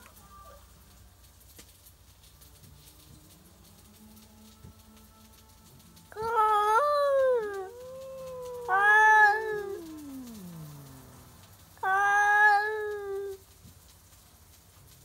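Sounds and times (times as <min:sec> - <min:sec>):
cat moaning low: 0:06.1 - 0:13.4
cats yowling: 0:06.1 - 0:13.4.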